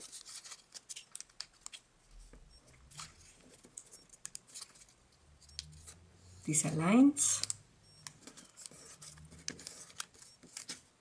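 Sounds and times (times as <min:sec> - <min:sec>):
paper crinkling and clicking: 0:00.0 - 0:01.9, 0:08.2 - 0:10.9.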